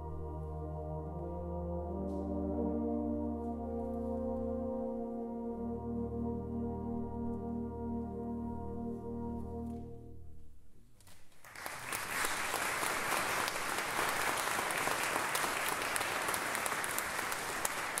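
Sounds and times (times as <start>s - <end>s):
audience applause: 11.4s - 18.0s.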